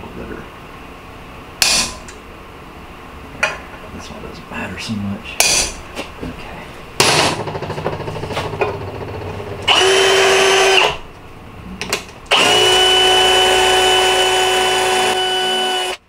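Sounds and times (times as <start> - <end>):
drill click: 9.6 - 11.0, 12.3 - 16.0
cordless drill whining: 9.7 - 11.0, 12.3 - 16.0.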